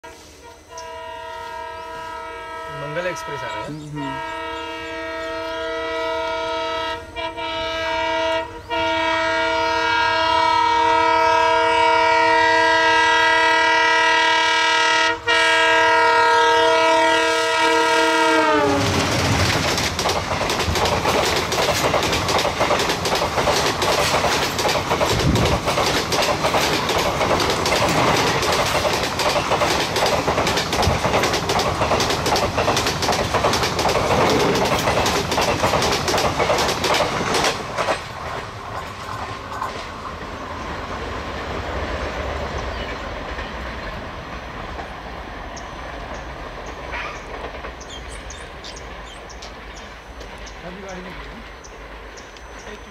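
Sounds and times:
locomotive horn blast: 0.0 - 19.1
train wheels clattering: 18.4 - 52.9.

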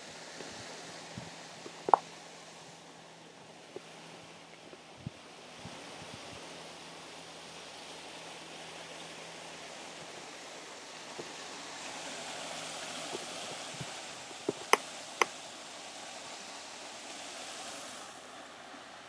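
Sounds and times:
water rushing over stone cascade: 0.0 - 19.0.

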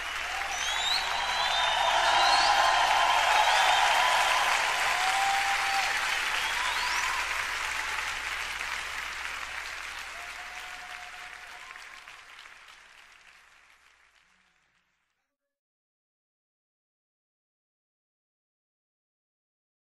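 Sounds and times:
whistles from crowd: 0.0 - 8.2
audience applauding: 0.0 - 15.0.

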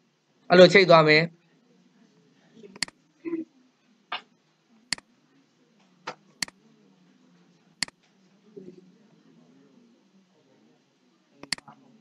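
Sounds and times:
computer mouse button clicks: 11.4 - 11.6.

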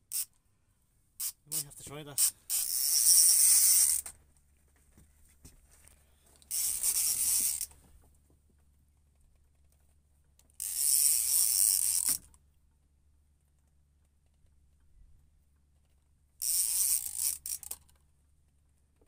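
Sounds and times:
fishing reel ratchet clicking: 0.1 - 0.3, 1.2 - 1.6, 2.2 - 4.0, 6.5 - 7.7, 10.6 - 12.3, 16.4 - 17.9.

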